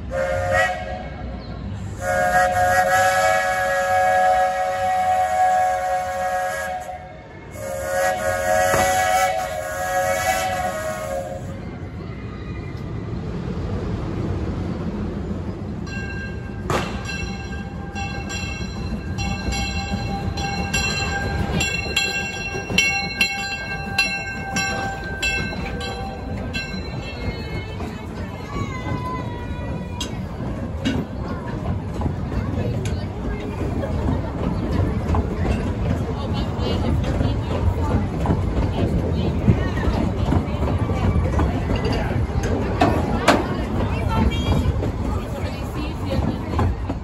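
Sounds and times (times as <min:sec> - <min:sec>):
steam locomotive rumbling past: 0:00.0 - 0:47.0
steam whistle blasts: 0:00.1 - 0:01.2, 0:01.9 - 0:11.6.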